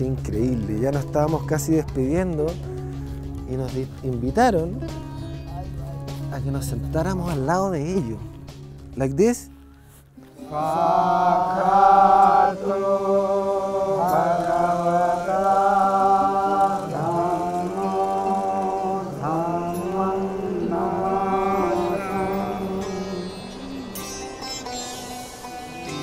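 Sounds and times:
person chanting: 10.4s - 24.4s
low drone: 10.4s - 26.0s.

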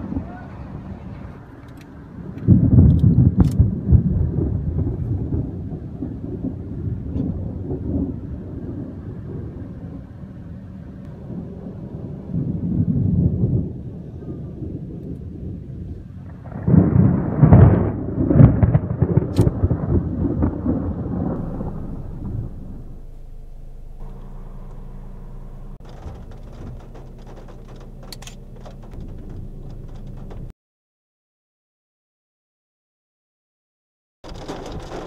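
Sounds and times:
rain pattering: 0.0s - 30.5s, 34.2s - 35.0s
thunder rumbling: 0.0s - 30.5s, 34.3s - 35.0s
sharp thunder crack: 2.2s - 10.1s, 11.1s - 30.5s
steady low hum: 21.2s - 30.5s.

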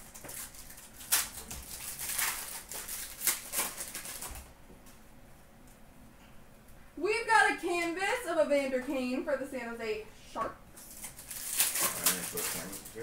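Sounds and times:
trading cards rustling and snapping: 0.0s - 4.5s, 10.8s - 13.0s.

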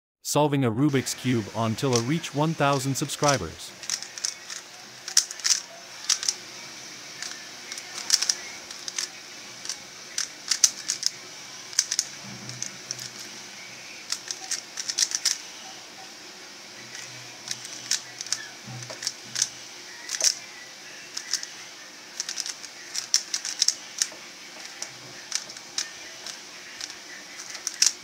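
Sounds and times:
puzzle cube layers clicking: 1.8s - 6.4s, 7.2s - 13.2s, 14.1s - 15.4s, 17.0s - 19.5s, 20.1s - 20.4s, 21.2s - 21.5s, 22.2s - 28.0s.

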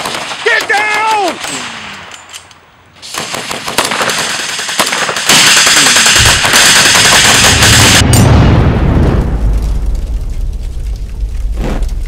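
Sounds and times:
automatic gunfire: 3.2s - 8.1s
loud dense blast: 5.8s - 12.0s
deep rumble: 7.8s - 12.0s.

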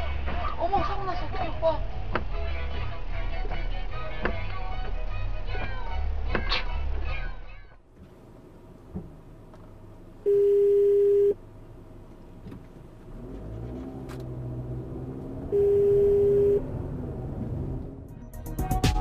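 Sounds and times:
car engine: 1.2s - 18.6s
loud beeps: 10.3s - 11.4s, 15.5s - 16.7s.

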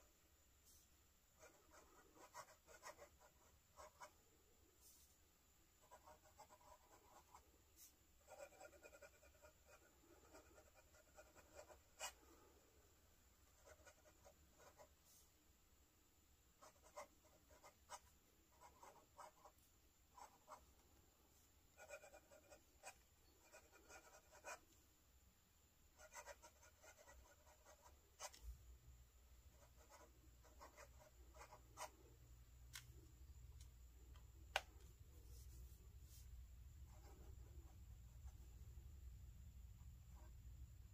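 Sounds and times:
pen nib scratching paper: 1.4s - 4.2s, 5.8s - 12.2s, 13.5s - 15.2s, 16.6s - 19.6s, 20.2s - 20.7s, 21.8s - 24.7s, 26.0s - 28.5s.

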